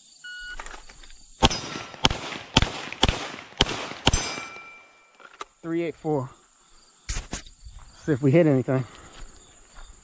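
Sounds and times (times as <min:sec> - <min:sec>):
steel plate ringing: 0:01.4 - 0:02.1, 0:04.1 - 0:05.2
pistol shots: 0:01.4 - 0:05.0.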